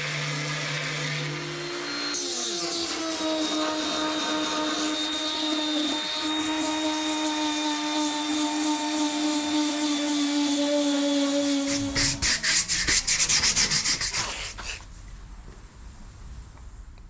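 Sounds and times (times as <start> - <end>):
orbital sander running: 0.0 - 13.9
sanding pad hiss: 1.6 - 14.8.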